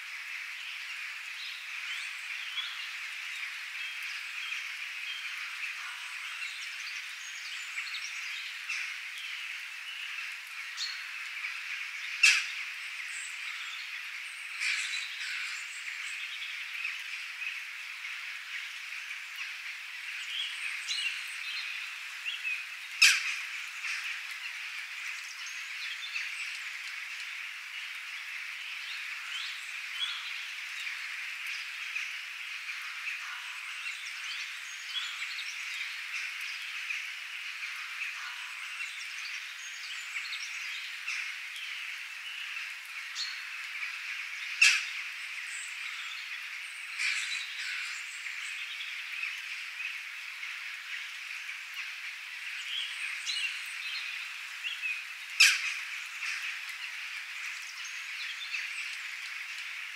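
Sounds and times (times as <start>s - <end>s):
sharp loud bird calls: 44.5s - 45.1s.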